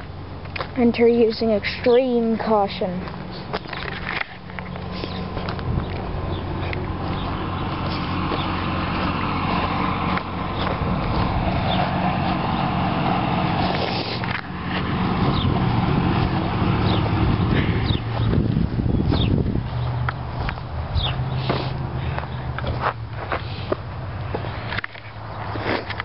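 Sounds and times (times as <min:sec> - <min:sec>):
vehicle engine humming: 0:00.0 - 0:26.0
bird chirps: 0:21.0 - 0:21.3.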